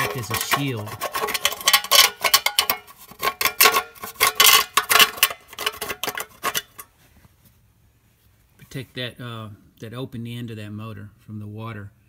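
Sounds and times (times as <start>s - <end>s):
tin can clicks and clanks: 0.0s - 6.9s.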